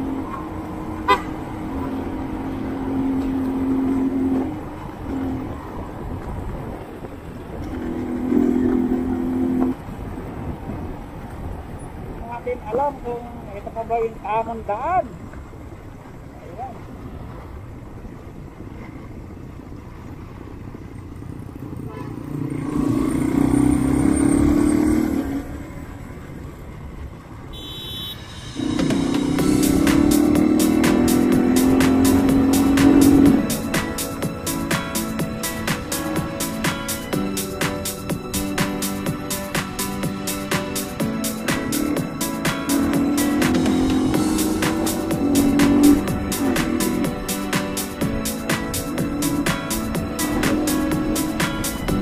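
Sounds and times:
wind rush: 0.0 - 14.6, 22.7 - 52.0
motorcycle engine running: 27.6 - 37.5, 39.0 - 52.0.

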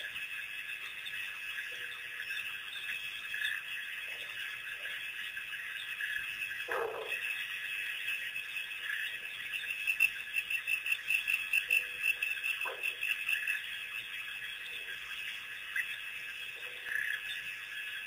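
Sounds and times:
frogs calling: 0.0 - 18.0
wild dog yelp: 6.7 - 7.2.

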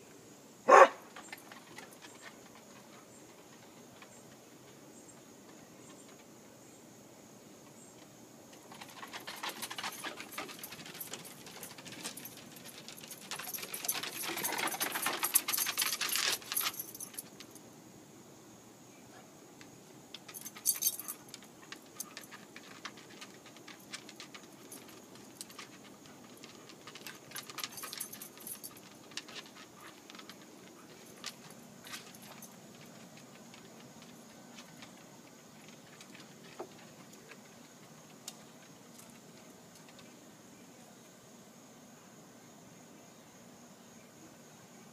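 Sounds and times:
collar tags jingling: 0.7 - 4.6, 8.5 - 17.7, 20.1 - 40.2
claws pattering on wooden boards: 7.9 - 17.6, 20.1 - 40.2.

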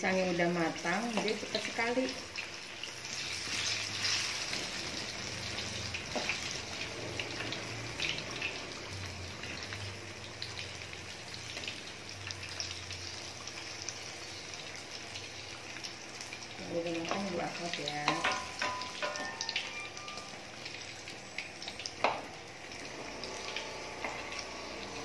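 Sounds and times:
fritters frying in hot oil: 0.0 - 25.0
metal spatula scraping and tapping: 18.1 - 19.6.

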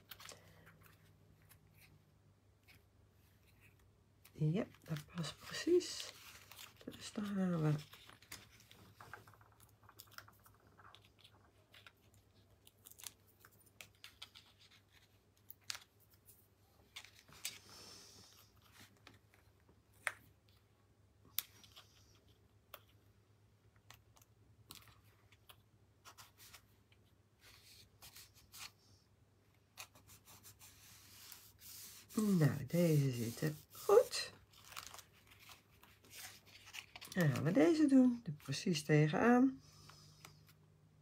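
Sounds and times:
card and paper rustling: 0.0 - 2.0, 4.5 - 20.6, 29.7 - 38.8.

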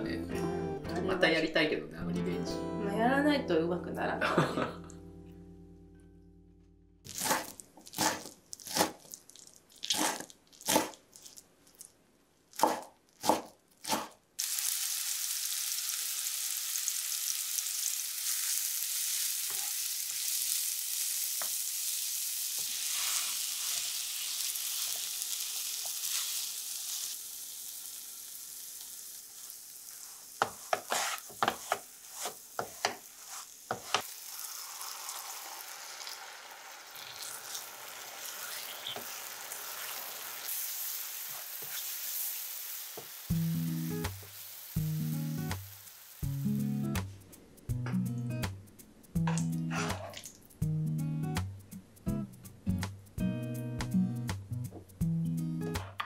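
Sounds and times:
knife chopping on wooden board: 7.1 - 9.0, 9.9 - 11.0, 12.6 - 14.2, 30.4 - 33.0, 33.7 - 34.0
frying pan sizzling: 14.4 - 47.1
wooden spatula knocking in pan: 30.4 - 31.8, 32.6 - 33.0.

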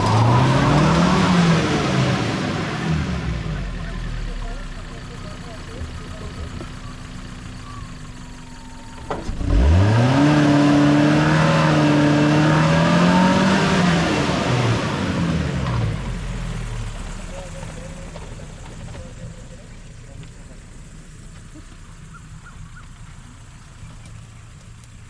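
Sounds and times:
engine revving hard: 0.0 - 3.8, 9.3 - 16.8
click: 23.9 - 25.0.

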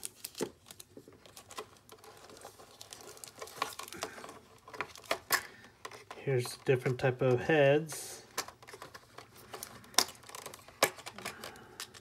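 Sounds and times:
packing paper rustling: 0.0 - 12.0
plastic and cardboard clicks: 8.3 - 12.0.

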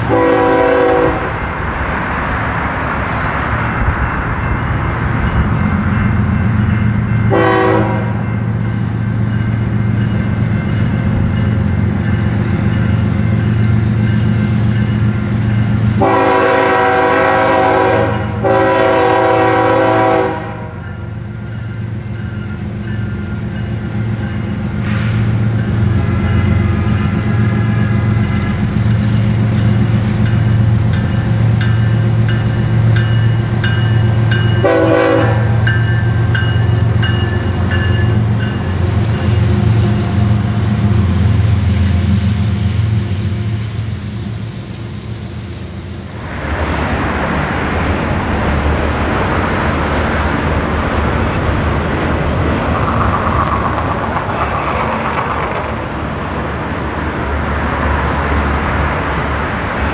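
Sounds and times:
locomotive horn blast: 0.0 - 1.4, 7.3 - 8.3, 16.0 - 20.8, 34.6 - 35.8
diesel locomotive engine running: 0.0 - 59.9
rail cars rolling past: 0.0 - 59.9.

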